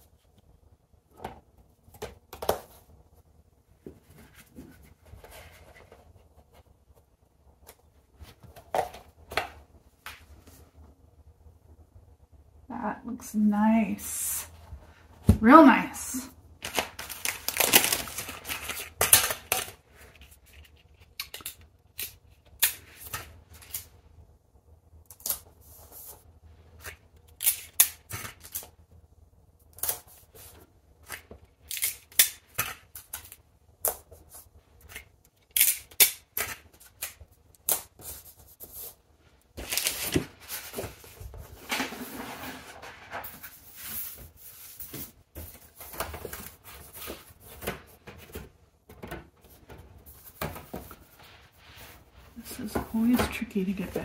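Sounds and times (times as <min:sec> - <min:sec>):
plastic and paper clicks and crinkles: 0:16.6 - 0:23.9, 0:39.6 - 0:44.2
cardboard rubbing and scraping: 0:39.6 - 0:48.0.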